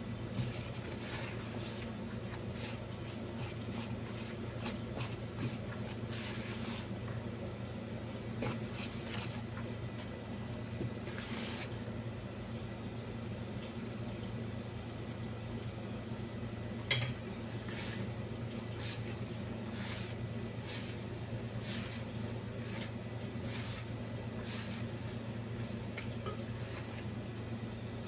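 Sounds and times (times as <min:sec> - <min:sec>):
dough scraping rustle: 0:00.3 - 0:07.0, 0:08.4 - 0:14.2, 0:17.2 - 0:27.1.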